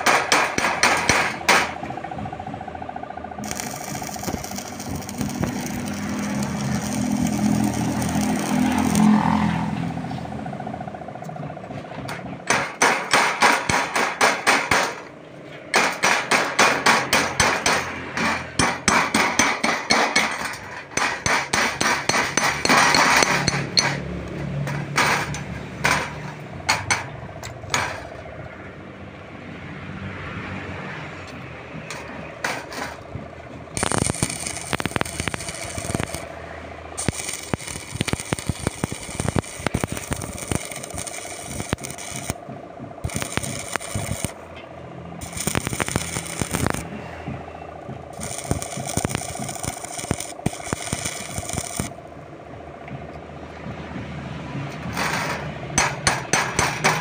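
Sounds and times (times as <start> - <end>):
welding arc crackling: 3.4 - 10.0, 33.7 - 44.5, 45.2 - 47.2, 48.0 - 52.1, 54.8 - 57.0.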